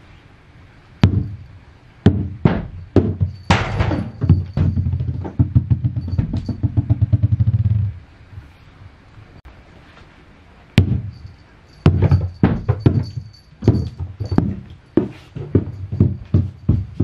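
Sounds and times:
paws and ball thudding on boards: 2.1s - 7.9s, 11.8s - 17.0s
ball knocking on wooden floor: 2.1s - 8.0s, 11.8s - 17.0s.

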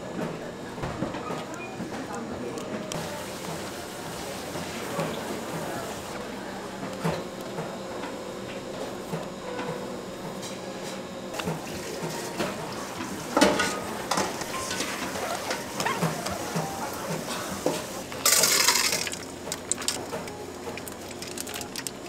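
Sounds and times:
steady background hum: 0.0s - 22.0s
dishes and utensils clinking: 13.4s - 19.2s.

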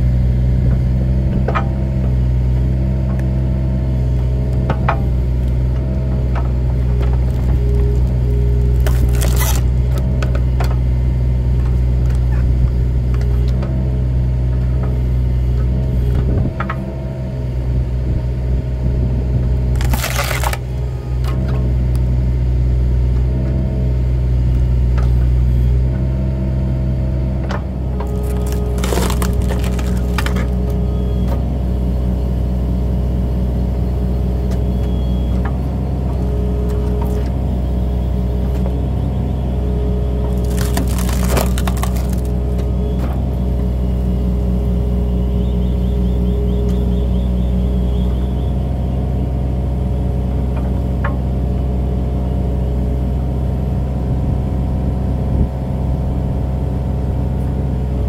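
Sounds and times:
excavator engine and hydraulics: 0.0s - 58.0s
wood cracking and splitting: 6.1s - 10.4s, 19.6s - 21.4s, 27.8s - 31.0s, 40.2s - 42.8s.

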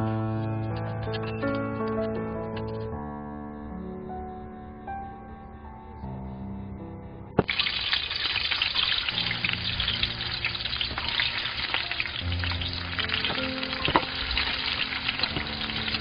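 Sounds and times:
garlic sizzling in hot oil: 7.4s - 16.0s.

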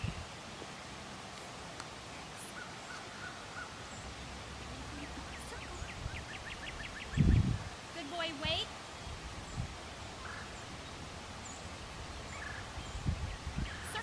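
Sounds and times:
faint hiss: 0.0s - 14.0s
birds calling: 2.3s - 7.9s, 8.8s - 14.0s.

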